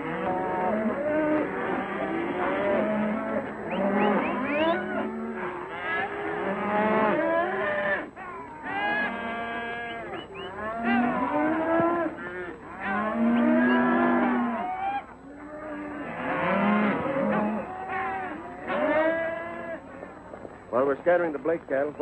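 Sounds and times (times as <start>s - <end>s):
cattle bellowing and mooing: 0.0s - 20.3s.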